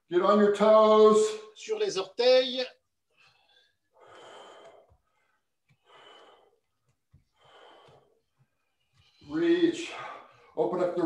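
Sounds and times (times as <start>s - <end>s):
man breathing: 3.0s - 10.6s.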